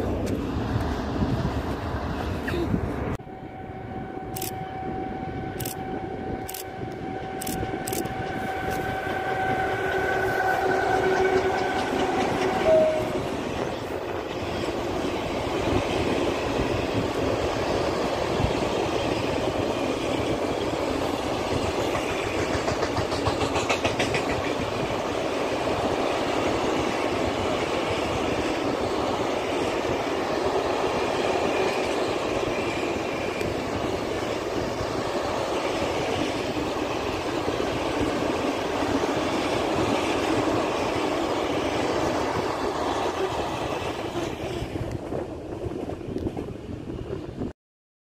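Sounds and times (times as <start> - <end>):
freight wagons rolling on rails: 7.4 - 46.5.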